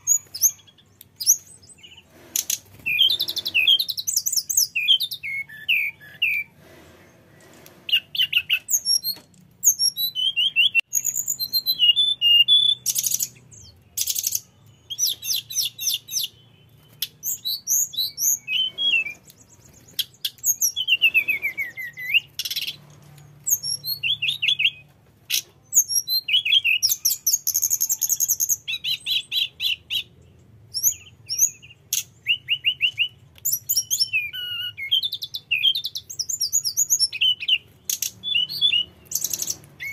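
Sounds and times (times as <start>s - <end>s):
flycatcher song: 35.0s - 39.9s.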